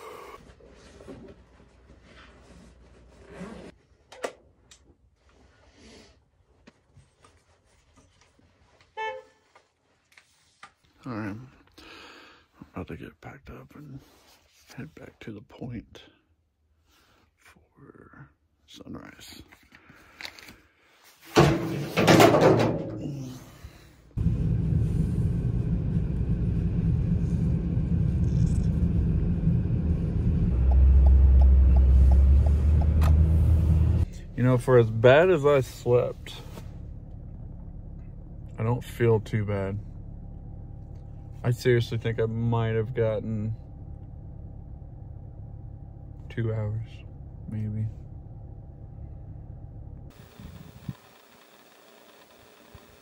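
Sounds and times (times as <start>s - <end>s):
car road and engine noise: 24.2s - 53.0s.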